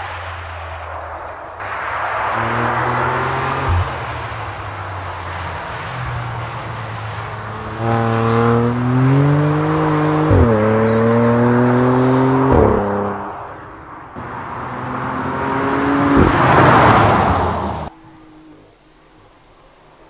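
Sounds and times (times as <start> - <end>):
car passing by: 0.0 - 17.9
car engine accelerating hard: 1.6 - 13.6, 14.2 - 17.9.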